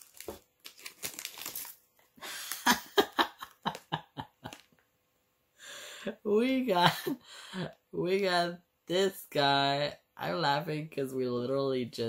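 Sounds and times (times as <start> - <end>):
man laughing: 2.2 - 4.7.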